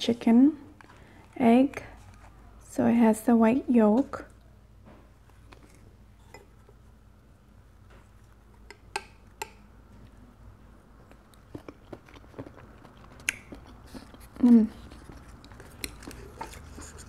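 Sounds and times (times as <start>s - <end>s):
chewing soft food: 10.8s - 17.0s.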